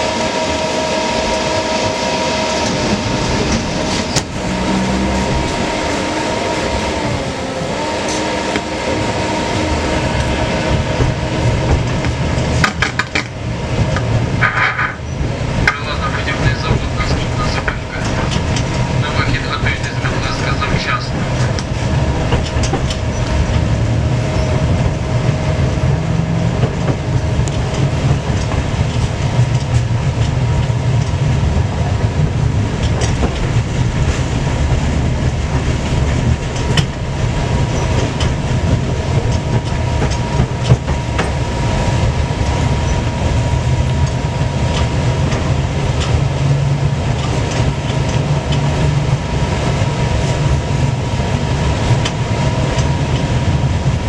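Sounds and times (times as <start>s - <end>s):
high whine: 0.0s - 54.0s
tram wheels rumbling on rails: 0.0s - 54.0s
clicks over rail joints: 10.2s - 15.9s.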